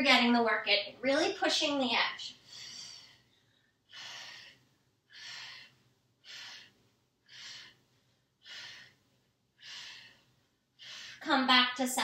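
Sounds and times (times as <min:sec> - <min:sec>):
woman breathing hard: 0:02.4 - 0:11.3.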